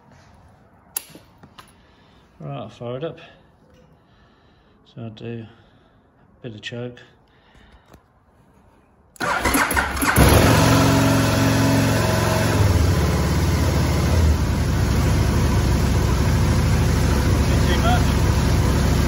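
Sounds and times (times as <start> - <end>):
motorcycle starter cranking: 9.2 - 11.4
motorcycle engine idling: 9.2 - 19.0.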